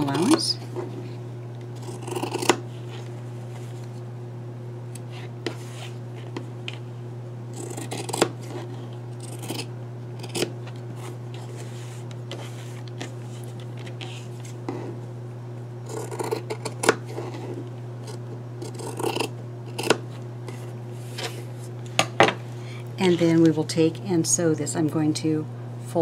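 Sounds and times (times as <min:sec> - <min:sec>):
scissors snipping fabric: 0:01.8 - 0:02.6, 0:07.6 - 0:08.4, 0:18.1 - 0:20.0.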